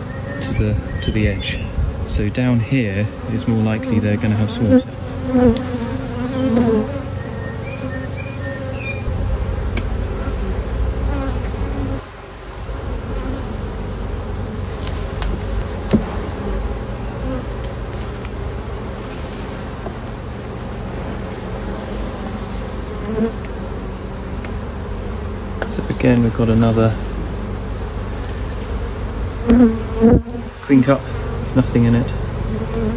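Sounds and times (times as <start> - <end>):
honeybees buzzing: 0.0 - 32.9.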